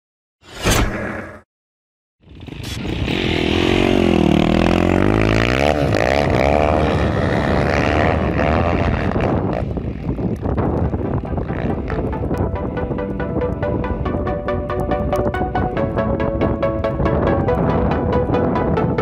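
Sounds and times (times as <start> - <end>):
dirt bike engine revving: 2.2 - 10.2.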